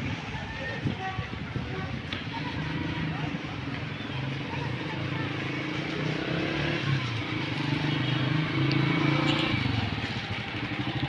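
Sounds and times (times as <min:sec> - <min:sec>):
small motorcycle engine running: 0:04.2 - 0:11.0.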